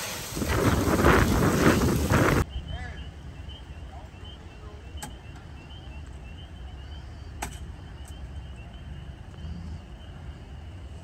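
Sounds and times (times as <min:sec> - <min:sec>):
wind rumble on microphone: 0:00.0 - 0:03.5.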